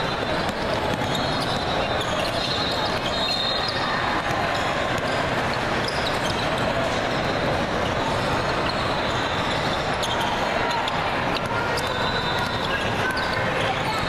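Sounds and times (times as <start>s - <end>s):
basketballs bouncing on hardwood: 0.2s - 1.8s
short high squeaks: 0.2s - 4.2s.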